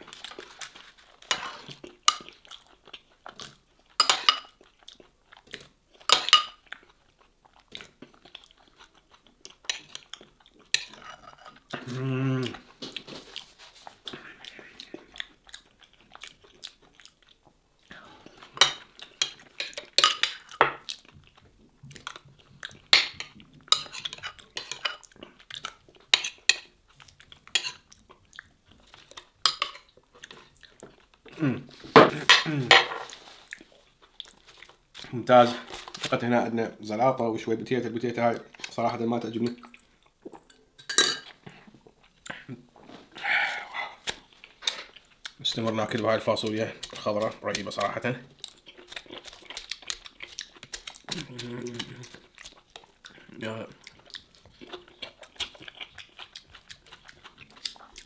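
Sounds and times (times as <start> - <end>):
wet chewing: 0.0 - 31.5, 33.1 - 36.2, 39.5 - 58.0
cutlery clinking against bowl: 4.0 - 4.5, 18.6 - 20.8, 40.8 - 41.3
person humming mmm: 11.8 - 12.7, 31.3 - 32.7, 51.1 - 52.2.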